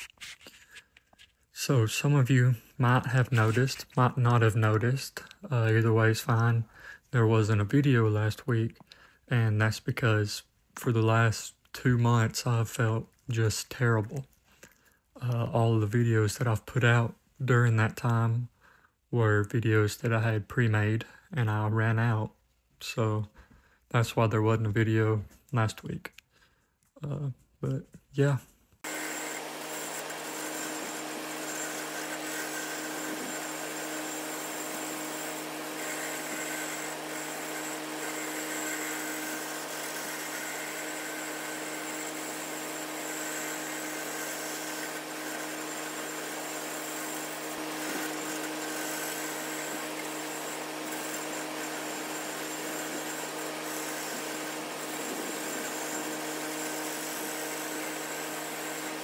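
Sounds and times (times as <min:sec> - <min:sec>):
gouge cutting spinning wood: 0:28.8 - 0:59.0
lathe motor hum: 0:28.8 - 0:59.0.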